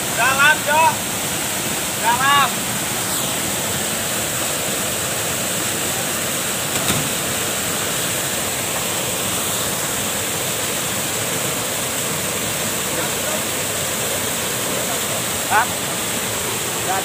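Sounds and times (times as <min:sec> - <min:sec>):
waterfall pouring into pool: 0:00.0 - 0:17.0
sharp knock or splash: 0:06.7 - 0:07.4.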